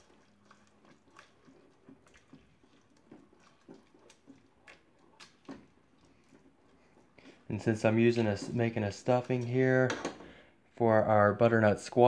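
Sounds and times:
spatula scraping rice in pot: 0.0 - 9.4.

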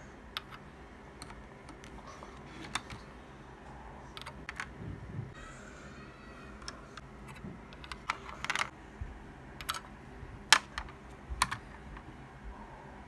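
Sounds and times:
plastic toy bricks clicking: 7.7 - 8.7, 9.6 - 9.8, 10.5 - 11.6.

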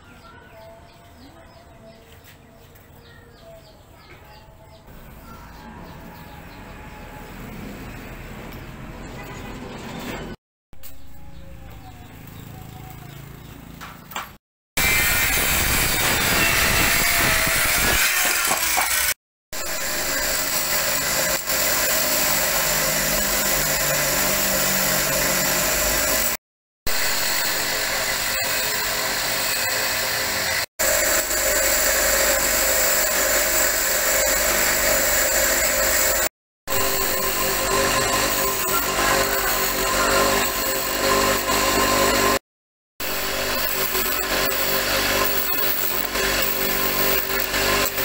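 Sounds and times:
wood lathe turning and grinding: 14.8 - 42.4, 43.0 - 48.0.

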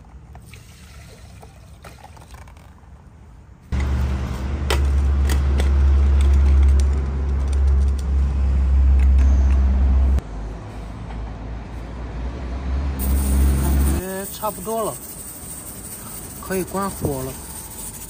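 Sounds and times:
lorries diesel engine drone: 3.8 - 14.1.

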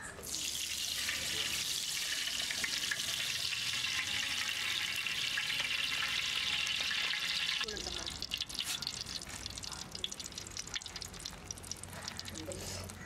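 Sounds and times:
oil sizzling in a pot: 0.2 - 13.0.

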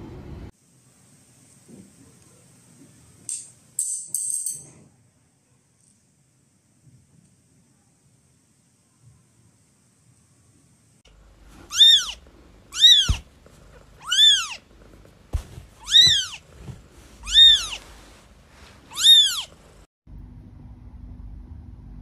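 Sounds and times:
kitten mewing: 11.6 - 14.9, 15.8 - 16.6, 17.2 - 17.8, 18.9 - 19.6.

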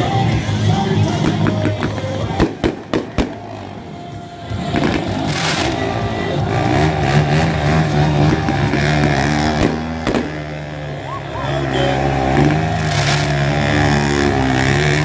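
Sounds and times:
quad engine running: 0.0 - 15.0
fountain fireworks hissing: 4.6 - 10.4, 12.3 - 14.0.

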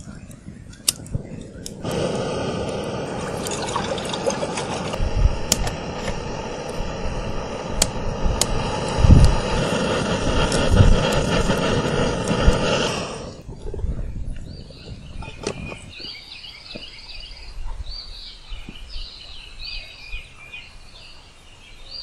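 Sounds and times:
campfire crackling: 0.0 - 14.5
stove burner hissing: 0.0 - 16.0.

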